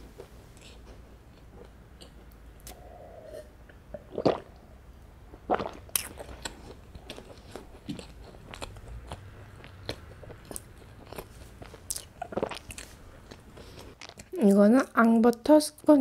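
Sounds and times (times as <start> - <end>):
soft chewing: 0.0 - 3.0, 5.9 - 14.5
wet mouth clicks: 2.0 - 3.3
gulps of milk: 2.7 - 4.6.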